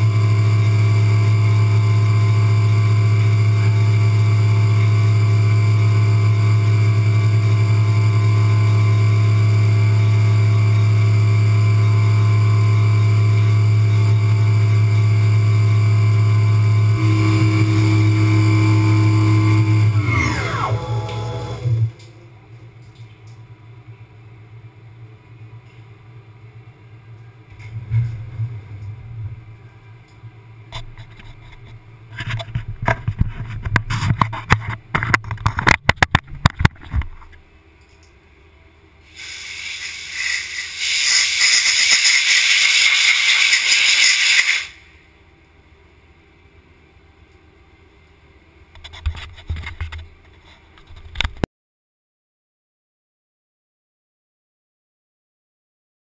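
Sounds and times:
compressed air hissing: 39.1s - 44.9s.

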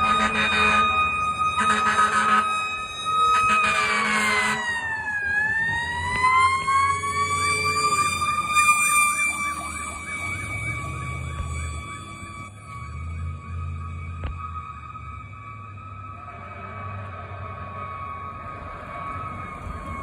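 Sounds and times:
horn blast: 0.0s - 1.0s, 1.6s - 2.5s
fire engine siren wail: 0.0s - 20.0s
siren fast yelp: 0.0s - 20.0s
truck engine rumble: 0.0s - 20.0s.

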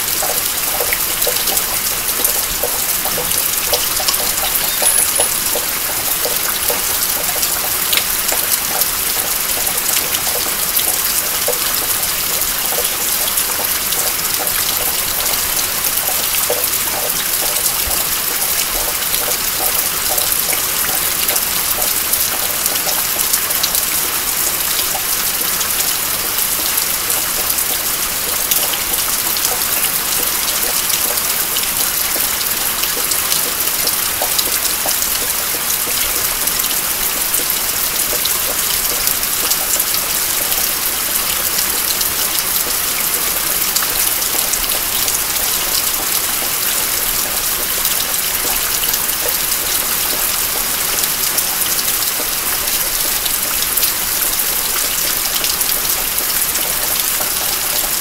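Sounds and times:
steady rain falling: 0.0s - 58.0s
water dripping from roof eave: 0.0s - 58.0s.

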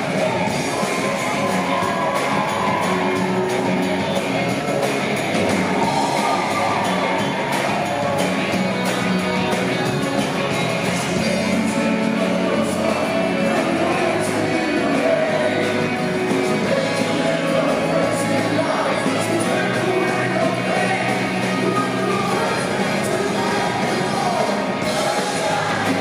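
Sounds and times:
pop-rock band playing: 0.0s - 26.0s
man singing into microphone: 11.0s - 26.0s.

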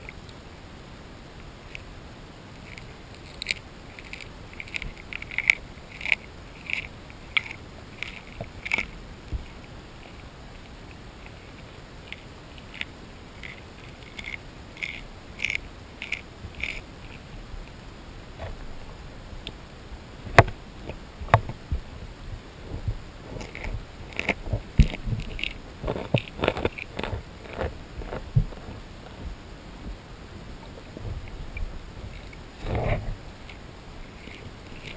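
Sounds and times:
fish crunching food underwater: 2.5s - 19.6s, 20.2s - 34.9s.

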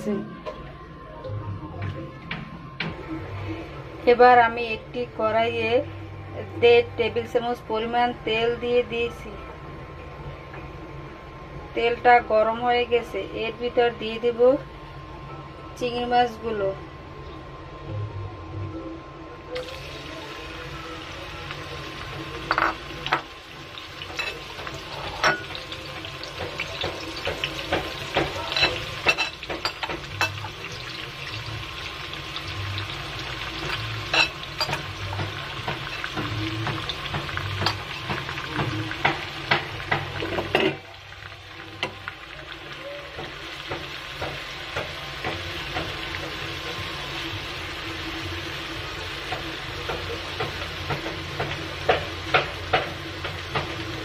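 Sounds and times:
prawns sizzling in hot oil: 19.6s - 54.0s.

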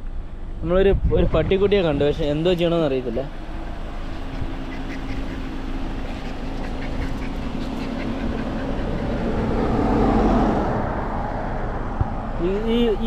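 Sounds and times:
low engine hum: 0.0s - 13.0s
vehicle passing: 1.4s - 13.0s.

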